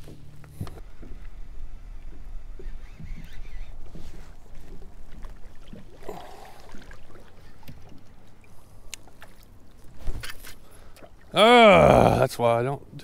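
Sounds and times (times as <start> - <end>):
water lapping against kayak hull: 2.1 - 11.4.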